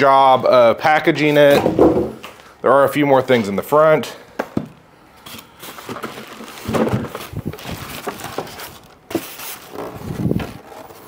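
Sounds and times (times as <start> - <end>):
knocks: 1.6 - 2.2
packaging rustling and scraping: 5.2 - 11.0.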